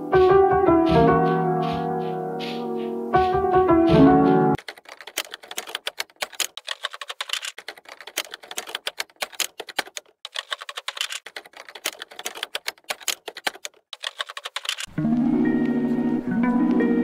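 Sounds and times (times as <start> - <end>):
keyboard key clicks: 4.6 - 14.9.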